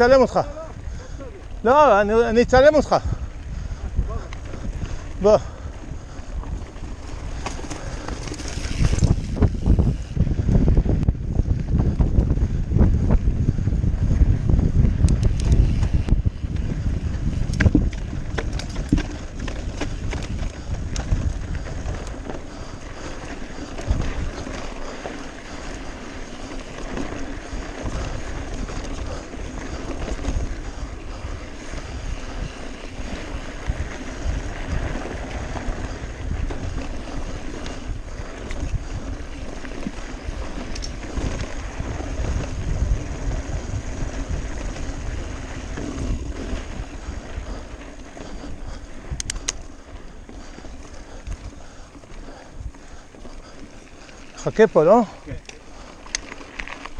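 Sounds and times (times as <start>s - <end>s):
bike tyres rumbling over dirt: 0.0s - 56.9s
wind rushing over microphone: 0.0s - 56.9s
bike knocks and rattles on stones: 6.4s - 9.9s, 15.2s - 30.9s.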